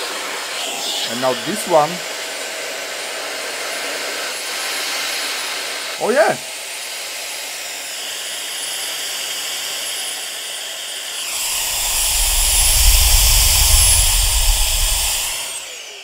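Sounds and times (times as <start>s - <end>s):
handheld vacuum motor whining: 11.2s - 16.0s
deep rush of air: 11.3s - 15.7s.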